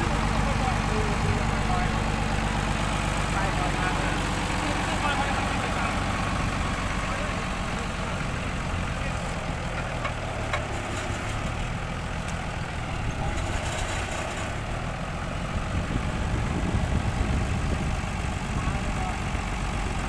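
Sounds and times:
engine idling: 0.0s - 20.0s.

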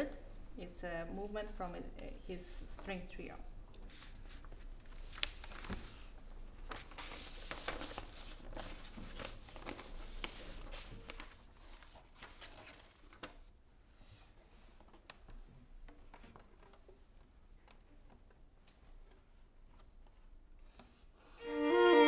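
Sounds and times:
paper rustling and crinkling: 3.8s - 13.5s.

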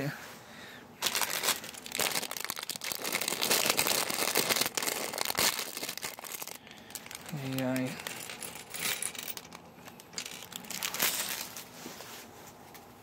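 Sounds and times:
plastic bag crinkling: 1.0s - 11.8s.

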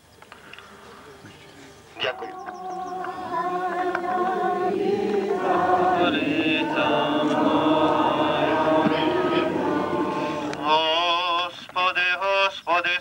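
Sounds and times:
group singing liturgical chant: 2.0s - 11.8s.

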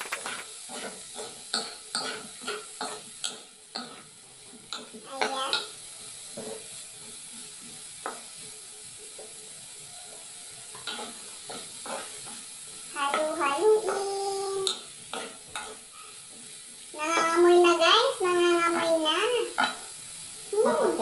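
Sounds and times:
spatula scraping metal pot: 0.0s - 3.1s
faint sizzle: 0.0s - 21.0s.

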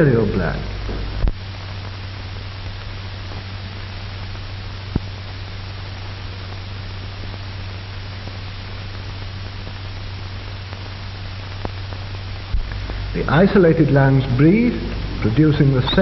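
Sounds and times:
film soundtrack hiss and hum: 0.0s - 16.0s.

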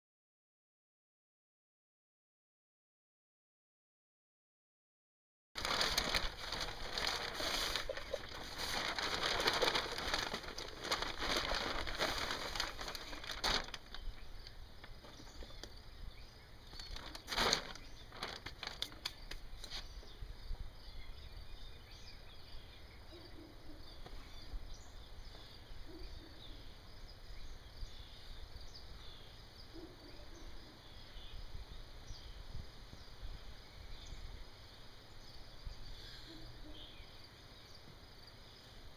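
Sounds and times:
rustling crackling noise: 5.6s - 15.8s, 16.6s - 20.0s
faint bird chirps: 12.6s - 38.9s.

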